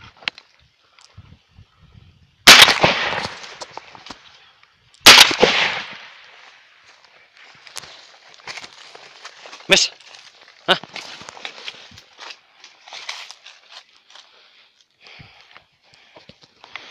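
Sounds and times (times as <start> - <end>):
shotgun shots echoing: 2.4 - 3.8, 5.0 - 6.4.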